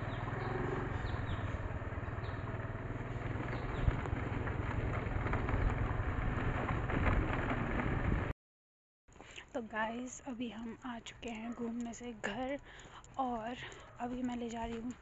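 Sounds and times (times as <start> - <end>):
road noise: 0.0 - 8.3
scooter engine humming: 0.0 - 8.3.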